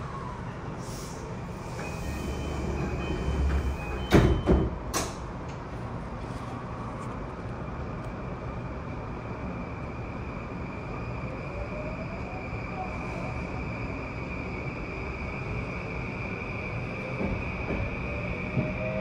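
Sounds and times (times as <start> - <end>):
stopped train humming: 0.0 - 19.0
train doors sliding shut: 0.8 - 5.7, 16.9 - 19.0.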